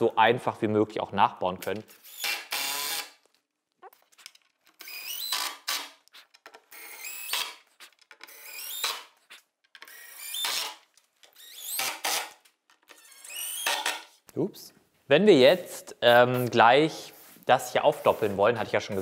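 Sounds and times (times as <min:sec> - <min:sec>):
drill driver motor whining: 0:02.0 - 0:03.2, 0:04.8 - 0:05.9, 0:06.7 - 0:09.0.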